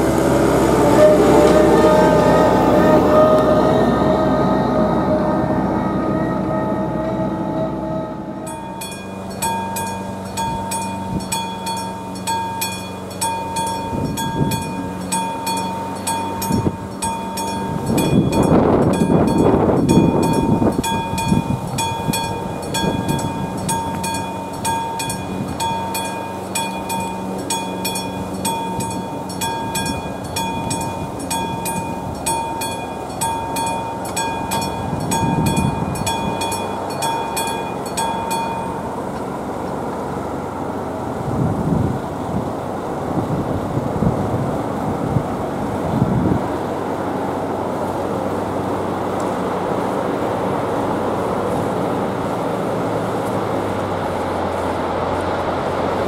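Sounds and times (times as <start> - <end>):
rumble passing: 0.0 - 56.0
level crossing bell ringing: 8.4 - 38.9.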